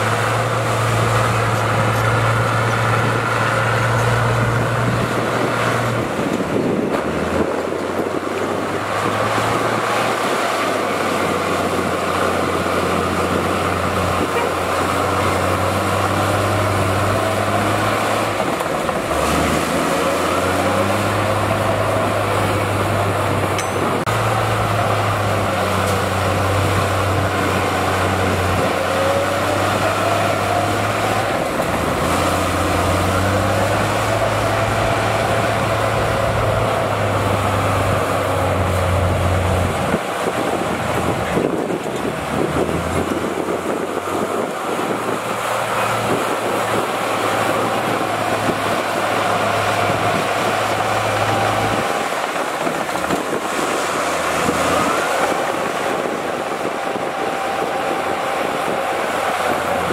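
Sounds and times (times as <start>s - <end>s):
heavy diesel machinery running: 0.0s - 59.9s.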